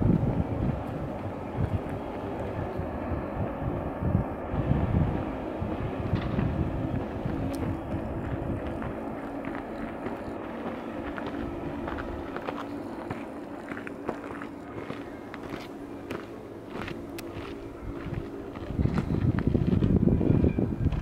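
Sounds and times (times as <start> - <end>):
low mechanical hum: 0.0 - 21.0
wind buffeting microphone: 0.0 - 21.0.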